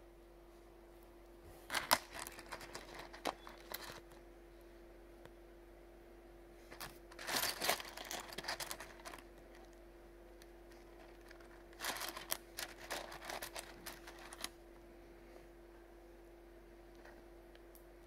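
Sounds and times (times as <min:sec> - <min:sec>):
faint steady hum: 0:00.0 - 0:18.0
stones clicking and clattering: 0:01.7 - 0:04.1, 0:06.7 - 0:09.8, 0:10.9 - 0:14.5.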